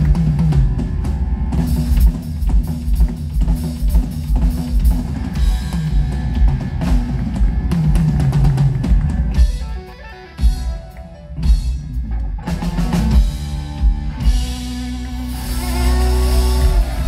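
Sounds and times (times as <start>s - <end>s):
rock band playing: 0.0s - 17.0s.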